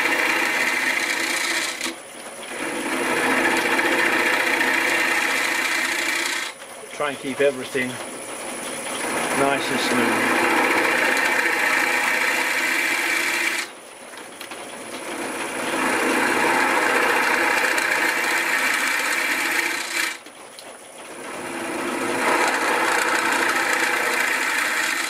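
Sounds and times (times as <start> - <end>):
chisel cutting wood on lathe: 0.0 - 7.9, 9.0 - 13.7, 15.0 - 20.2, 21.2 - 25.0
wood lathe running: 0.0 - 13.8, 14.7 - 20.3, 21.0 - 25.0.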